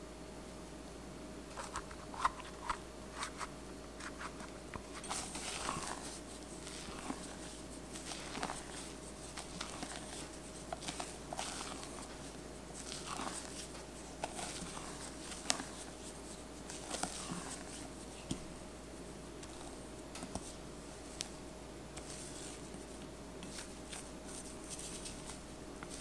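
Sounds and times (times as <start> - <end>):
spatula scraping batter in bowl: 4.1 - 18.0.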